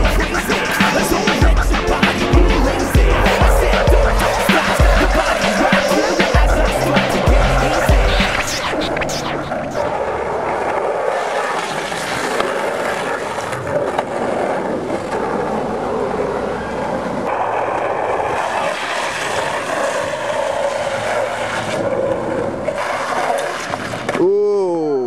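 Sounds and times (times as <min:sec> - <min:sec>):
longboard wheels rolling on pavement: 0:00.0 - 0:24.3.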